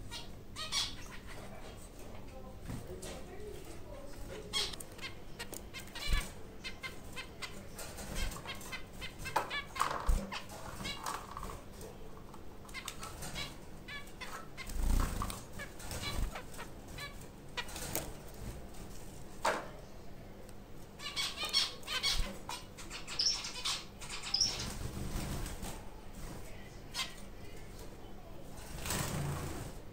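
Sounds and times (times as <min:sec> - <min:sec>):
high finch chirping: 0:00.0 - 0:01.7, 0:02.7 - 0:11.8, 0:12.7 - 0:18.6, 0:21.0 - 0:25.5, 0:26.9 - 0:27.3
birds fluttering wings: 0:14.6 - 0:19.2, 0:24.4 - 0:26.6, 0:28.6 - 0:29.8.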